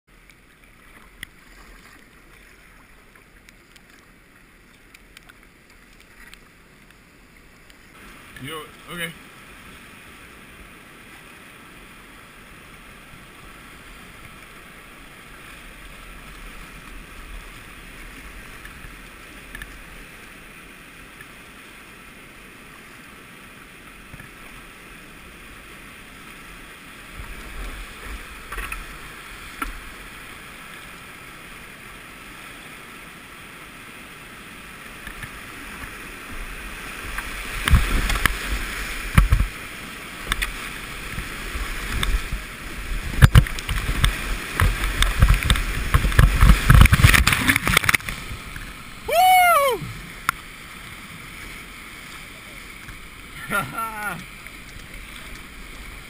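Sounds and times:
water splashing against a boat: 0.1 - 56.0
river rapids rushing: 34.6 - 55.9.

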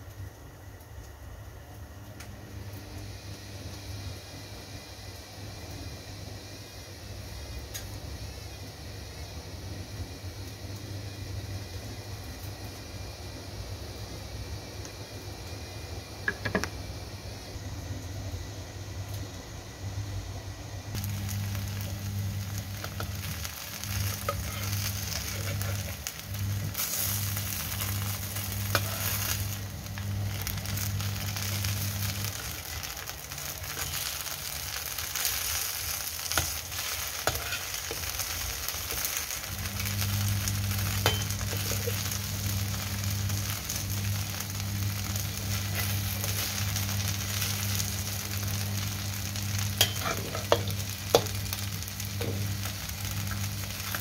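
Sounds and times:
low steady hum: 0.0 - 54.0
cake slices sizzling in oil: 20.9 - 54.0.

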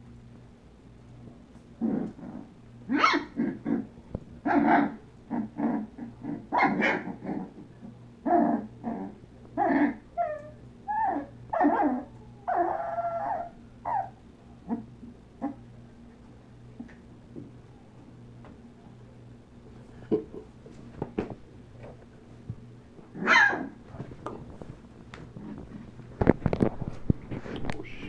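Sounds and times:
puppy whimpering and whining: 9.6 - 14.8.

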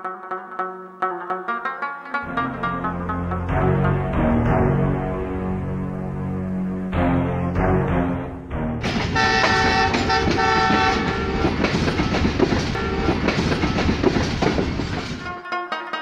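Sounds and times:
train wheels clattering: 8.8 - 15.3
locomotive horn blasts: 8.9 - 11.5.

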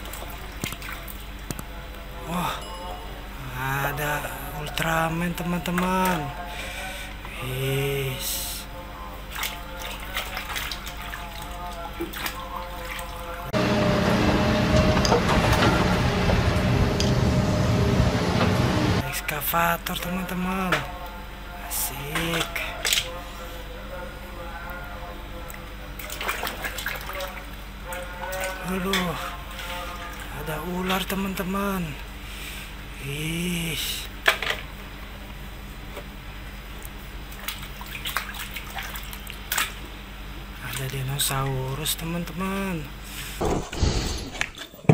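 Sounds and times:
hand splashing in water basin: 9.3 - 13.3, 26.0 - 27.4
excavator engine hum: 13.5 - 19.1.

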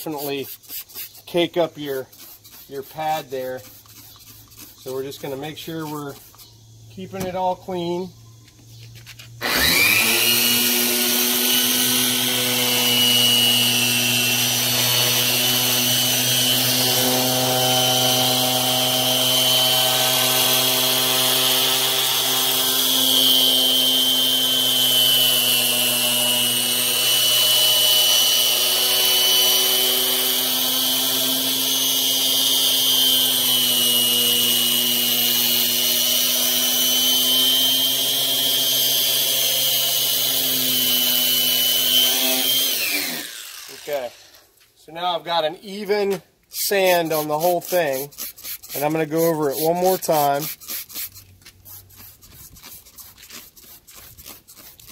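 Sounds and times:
high hiss of sanding: 2.0 - 6.5
electric polisher motor: 9.4 - 44.4.

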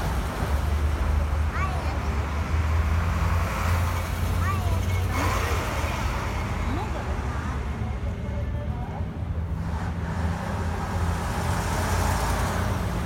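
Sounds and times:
heavy trucks driving past: 0.0 - 8.2.

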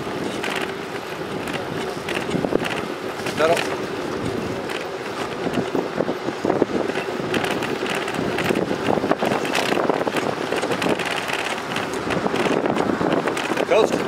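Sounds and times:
bicycle tyre noise: 0.0 - 14.0
bike clicks and rattles: 0.0 - 14.0
wind rushing over microphone: 0.0 - 14.0.

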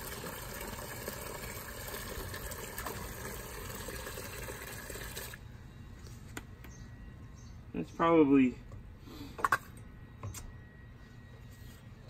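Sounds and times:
water stream splashing into bucket: 0.0 - 5.4.

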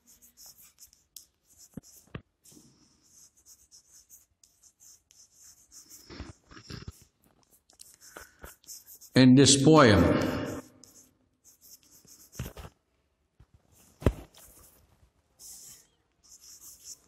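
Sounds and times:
chalk tapping on blackboard: 0.0 - 2.6, 7.7 - 9.2, 15.4 - 17.0
chalk scratching on blackboard: 0.0 - 9.2, 10.2 - 12.7, 14.3 - 14.8, 15.4 - 17.0.

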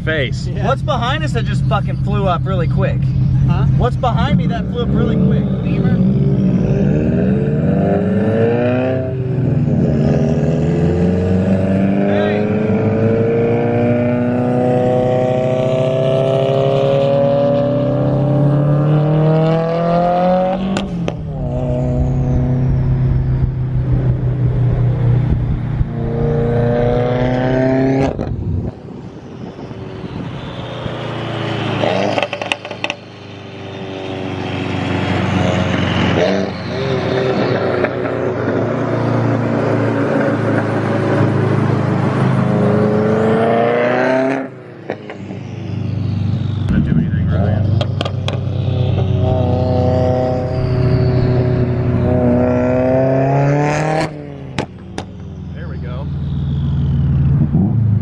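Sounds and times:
car engine accelerating hard: 0.0 - 58.0
exhaust cracks: 46.6 - 49.4, 54.5 - 56.2.

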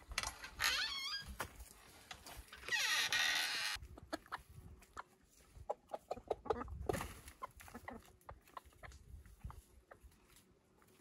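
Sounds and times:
chickens clucking: 3.7 - 11.0.

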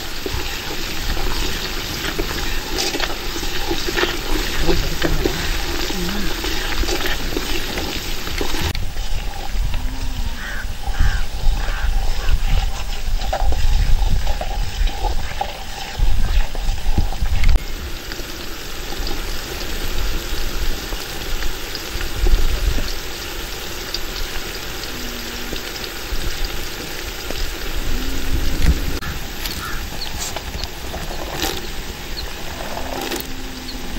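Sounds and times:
shallots sizzling in hot oil: 0.0 - 32.6
low rumbling thumps: 27.4 - 30.0.

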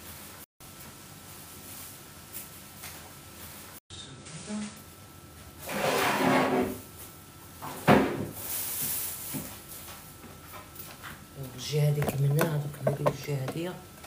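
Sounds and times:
drawer sliding with scraping: 5.6 - 6.8
drawer shutting with a knock: 7.8 - 8.3.

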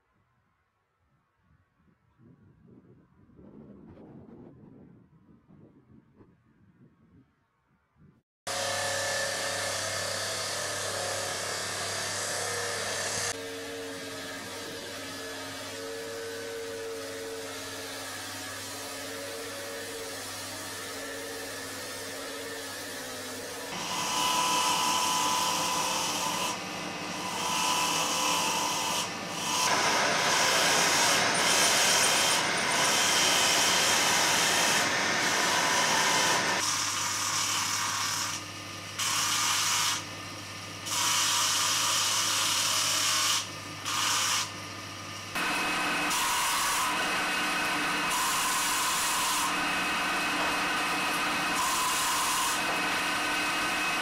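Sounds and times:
power tool running: 8.5 - 54.0
steel tool scraping stone on lathe: 23.7 - 38.4, 40.9 - 44.5, 45.4 - 54.0
tool scraping stone: 23.7 - 38.4.

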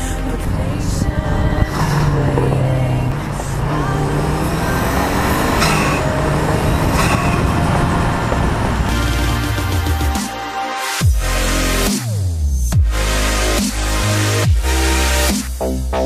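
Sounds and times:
car engine running: 0.0 - 11.8
road noise: 0.0 - 11.8.

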